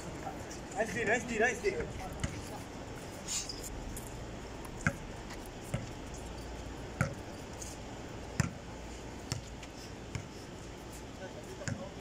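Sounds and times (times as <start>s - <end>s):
basketball bouncing on concrete: 2.1s - 2.6s, 4.7s - 6.0s, 7.0s - 7.3s, 8.3s - 8.6s, 9.2s - 10.3s, 11.6s - 11.9s.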